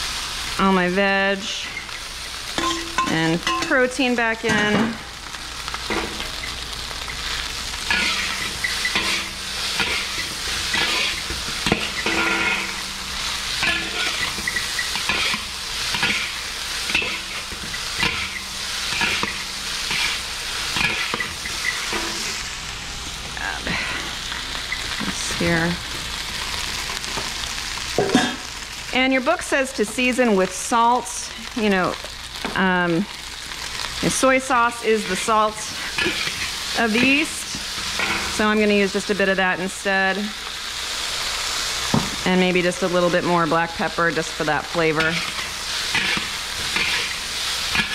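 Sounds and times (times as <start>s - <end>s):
rice sizzling in a wok: 0.0s - 47.9s
metal spatulas scraping a wok: 7.9s - 12.8s, 13.5s - 22.4s, 34.9s - 38.5s, 44.8s - 47.9s.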